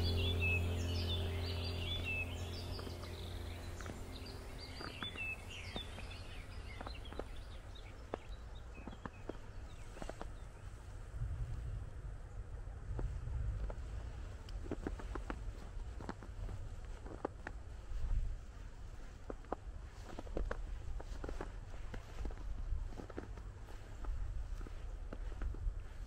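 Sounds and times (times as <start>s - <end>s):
small birds chirping: 0.0s - 11.1s.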